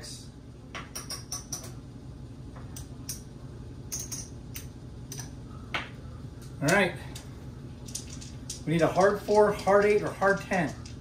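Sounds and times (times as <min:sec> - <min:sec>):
low room hum: 0:00.0 - 0:11.0
casino chips clicking: 0:07.8 - 0:11.0.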